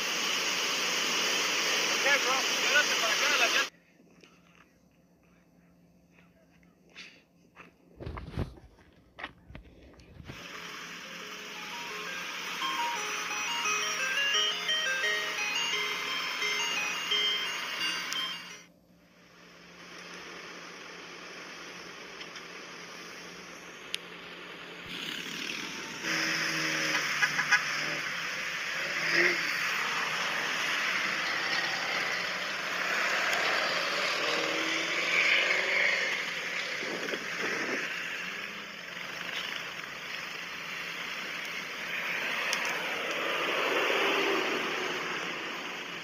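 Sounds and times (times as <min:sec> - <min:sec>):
steady hiss: 0:00.0 - 0:03.7
vehicles driving past on sand: 0:21.5 - 0:46.0.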